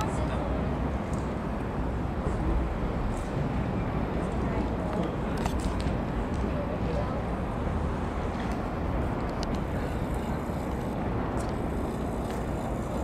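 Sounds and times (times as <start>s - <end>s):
distant city traffic rumble: 0.0s - 13.0s.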